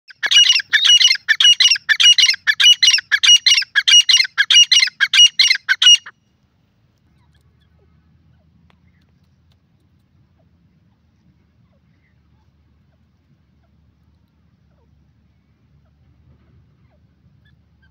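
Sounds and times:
francolin calling harsh notes: 0.1 - 6.1
faint low rumble: 6.2 - 17.9.

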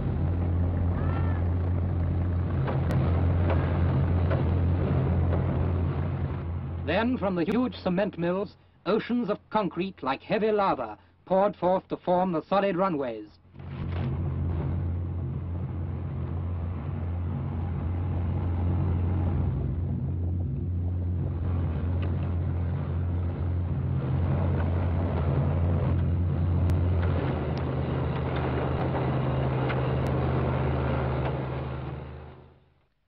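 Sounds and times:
paving machinery engines droning: 0.0 - 8.4, 13.5 - 32.7
rattling noise: 0.1 - 6.9, 13.5 - 32.2.

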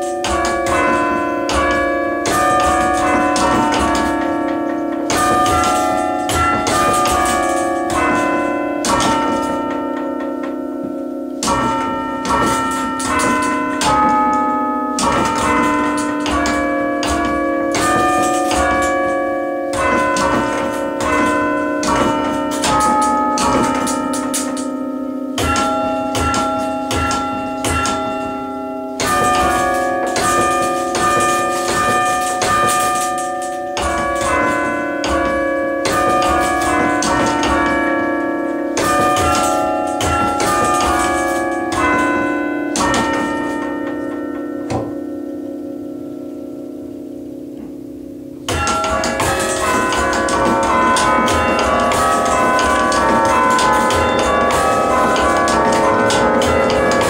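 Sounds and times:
tower bells playing slow melody: 0.0 - 57.0.

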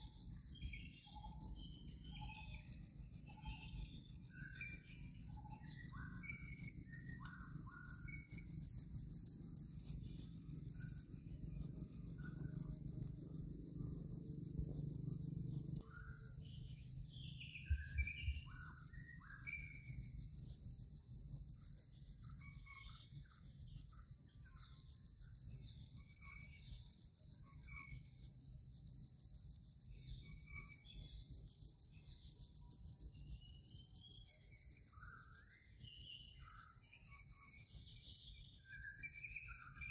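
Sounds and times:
shrill insect trilling: 0.0 - 20.6
bird chirps: 0.3 - 13.4, 15.8 - 20.2, 33.5 - 39.9.

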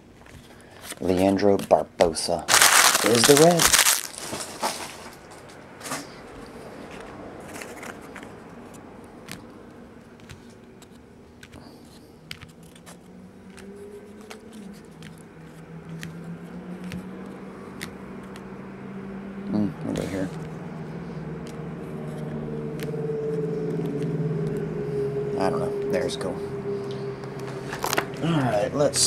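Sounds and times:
cards clicking on tabletop: 10.2 - 15.2, 16.8 - 18.5.

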